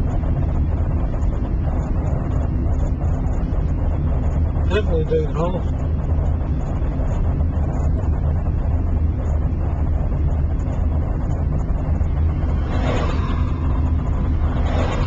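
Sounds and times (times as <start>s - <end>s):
road and tyre noise in car: 0.0s - 15.0s.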